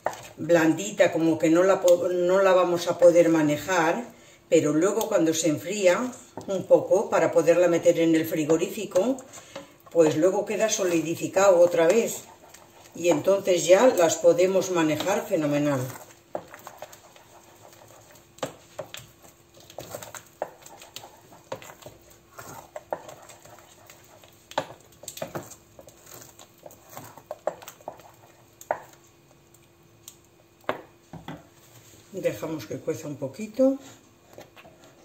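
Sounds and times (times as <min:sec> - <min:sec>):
wooden spoon scraping metal pot: 0:00.0 - 0:00.5, 0:07.2 - 0:29.1
faint steady hum: 0:00.0 - 0:35.0.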